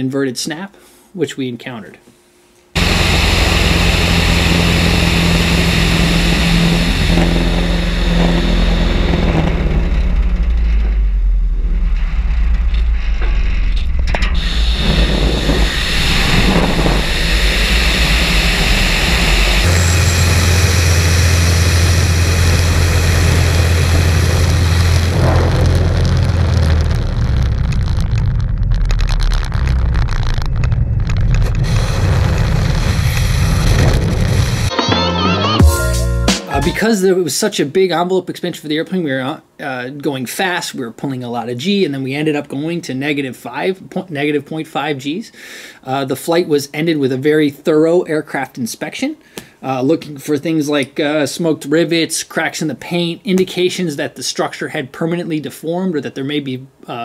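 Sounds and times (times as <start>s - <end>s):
air rushing: 2.8s - 34.7s
propeller airplane engine: 2.8s - 34.7s.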